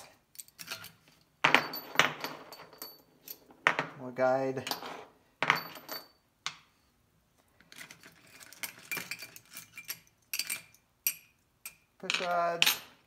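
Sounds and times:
metal parts clinking in a tray: 7.7s - 11.3s.

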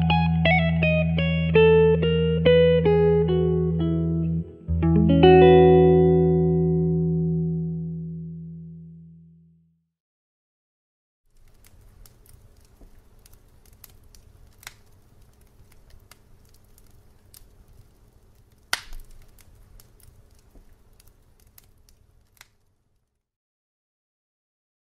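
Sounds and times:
loud crack: 11.3s - 22.7s
sparkler crackling and popping: 11.3s - 23.1s.

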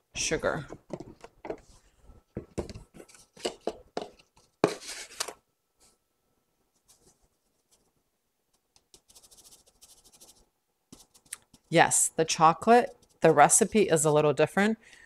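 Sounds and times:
scoop scraping through sugar: 4.6s - 5.3s.

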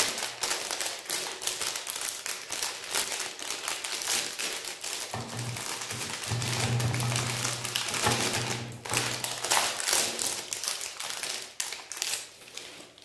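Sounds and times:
foil wrapper crinkling and tearing: 0.0s - 13.0s.

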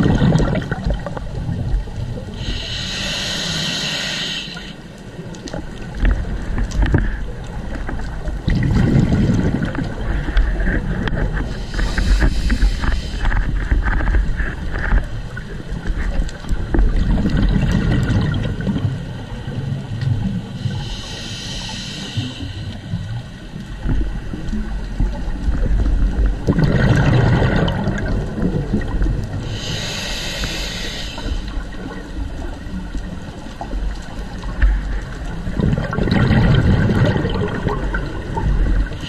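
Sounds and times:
exhaled air bubbling: 0.0s - 39.0s
regulator hissing inhalations: 2.4s - 4.8s, 11.5s - 13.5s, 20.6s - 22.9s, 29.4s - 31.7s.

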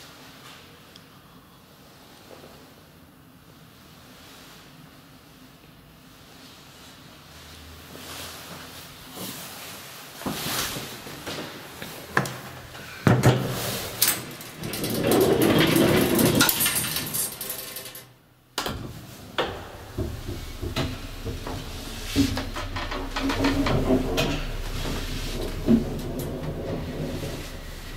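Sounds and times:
elevator door rattling: 13.2s - 27.9s.

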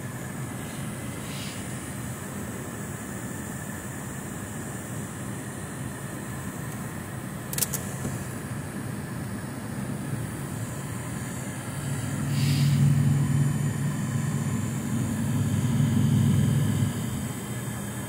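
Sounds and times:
car engine drone inside cabin: 0.0s - 18.0s
brief hiss: 12.3s - 12.8s.

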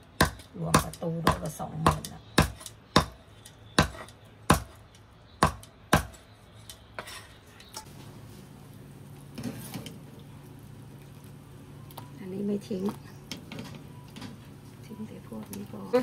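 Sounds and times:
knife chopping through bone: 0.2s - 3.2s, 3.8s - 4.8s.

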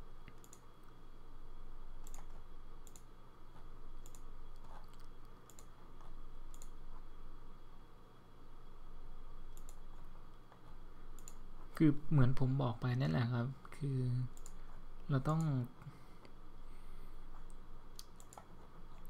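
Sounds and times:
steady low hum: 0.0s - 19.0s
computer mouse clicking: 0.2s - 1.0s, 2.0s - 7.1s, 9.5s - 11.7s, 14.3s - 15.7s, 17.3s - 19.0s.

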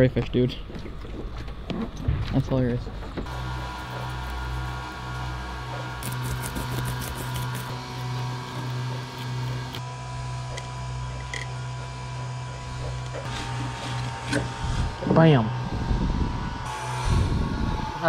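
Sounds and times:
steady low hum: 0.0s - 18.0s
knife scraping fish: 5.8s - 9.8s.

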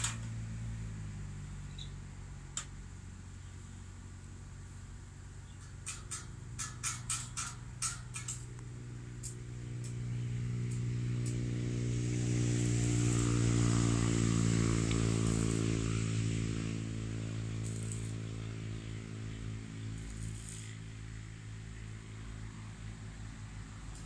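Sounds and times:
vehicle passing on road: 0.0s - 5.3s, 7.9s - 24.0s
low engine hum: 0.0s - 6.6s, 7.6s - 24.0s.

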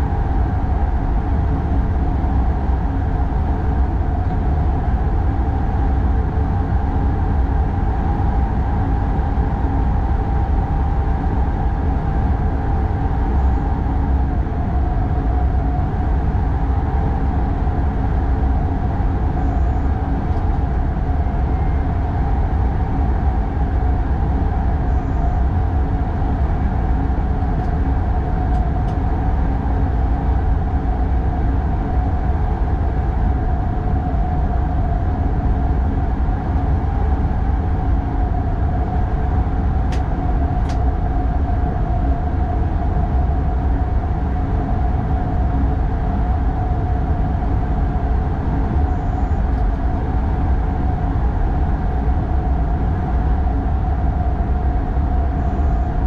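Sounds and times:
steady train hum: 0.0s - 56.0s.

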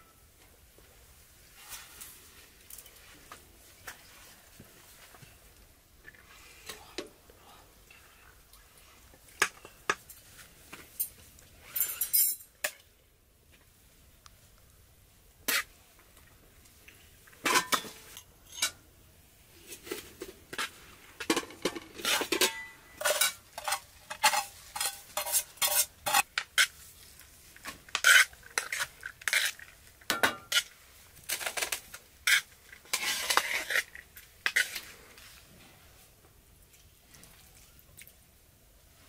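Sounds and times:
metal spoons clinking on pans: 11.0s - 12.8s, 17.5s - 18.8s, 21.3s - 26.7s.

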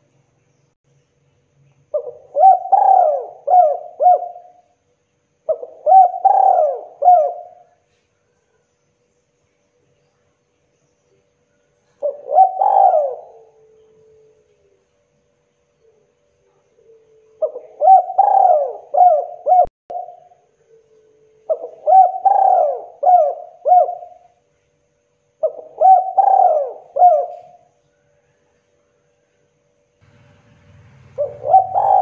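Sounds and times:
dove cooing: 1.9s - 4.8s, 5.5s - 7.9s, 12.0s - 14.8s, 15.9s - 24.4s, 25.4s - 28.4s, 31.0s - 32.0s.

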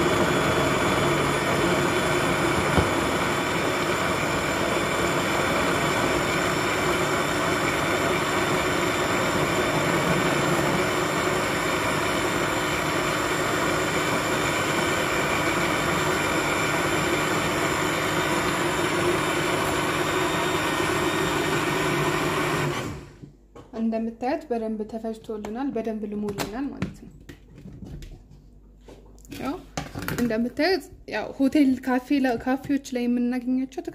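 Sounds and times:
blender running: 0.0s - 23.2s.

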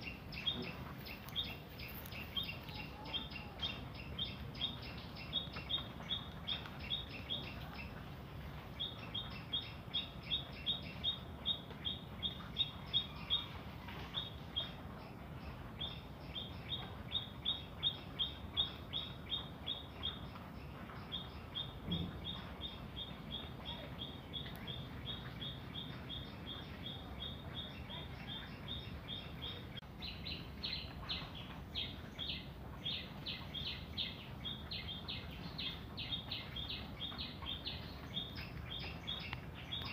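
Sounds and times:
small bird chirping: 0.0s - 39.9s.

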